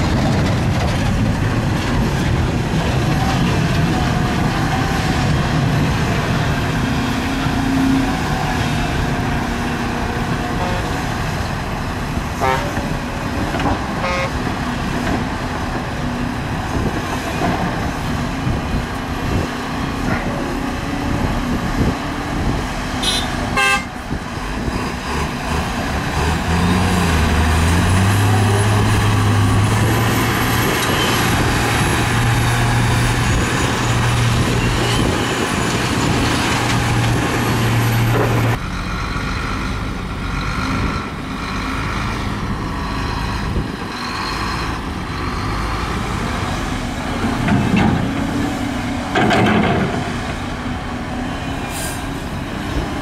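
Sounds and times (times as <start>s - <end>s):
diesel engines running: 0.0s - 53.0s
clatter of knocks: 49.1s - 50.2s.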